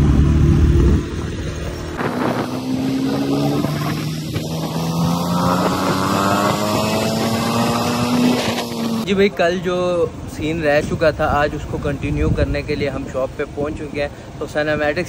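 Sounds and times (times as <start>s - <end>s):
motorcycle engine revving: 0.0s - 9.2s
wind rushing over microphone: 0.0s - 15.0s.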